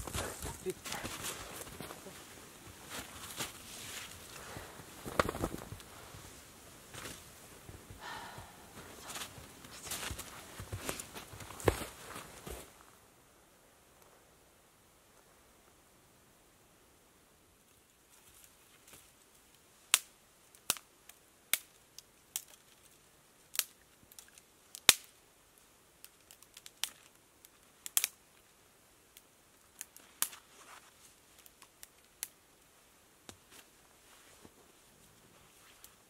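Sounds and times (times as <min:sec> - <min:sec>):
dry twigs cracking: 0:00.0 - 0:06.2, 0:19.9 - 0:25.2, 0:26.0 - 0:28.4, 0:29.6 - 0:32.4.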